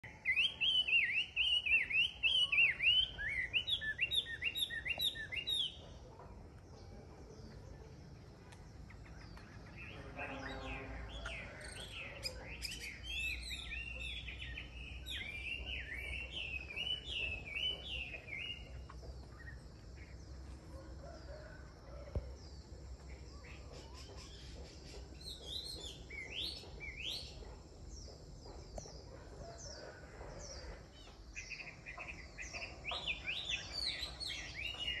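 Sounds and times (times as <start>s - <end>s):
songbird whistling: 0.0s - 5.8s.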